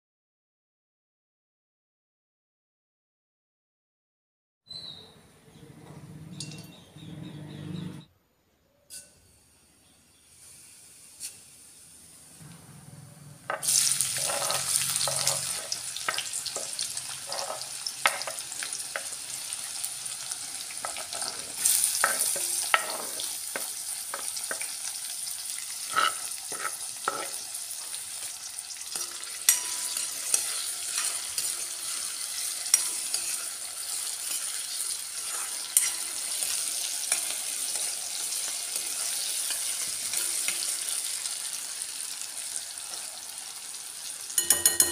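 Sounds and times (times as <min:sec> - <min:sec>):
oil sizzling in a pan: 0:10.1 - 0:12.4, 0:13.4 - 0:44.9
spoon scraping a pan: 0:13.5 - 0:41.1.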